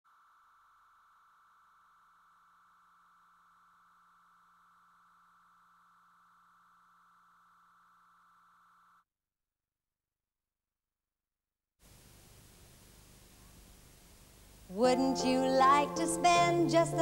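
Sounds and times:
high electronic tone: 0.1s - 9.0s
faint low hum: 11.8s - 15.6s.

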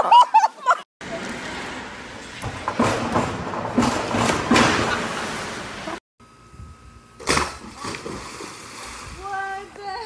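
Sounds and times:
diver splashing into pool: 7.2s - 9.0s.

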